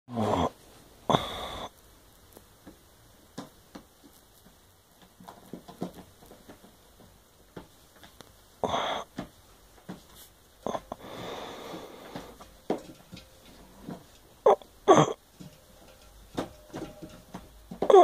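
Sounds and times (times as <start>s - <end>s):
bedding rustling: 4.9s - 18.0s.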